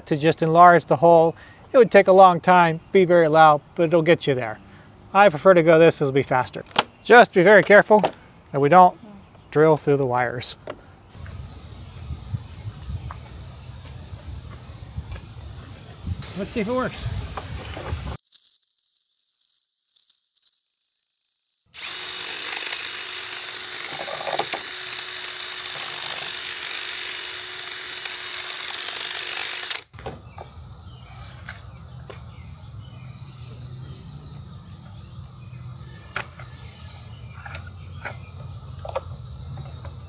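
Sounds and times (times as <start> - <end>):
power drill whining: 21.7 - 29.9.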